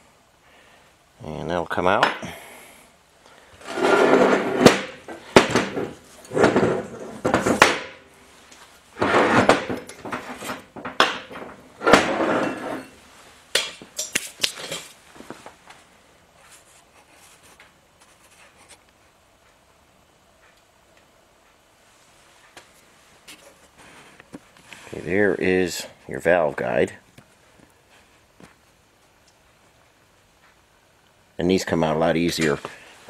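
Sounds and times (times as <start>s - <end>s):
metal scraping: 3.6s - 8.0s, 8.9s - 15.0s
metal clinking: 13.6s - 15.0s.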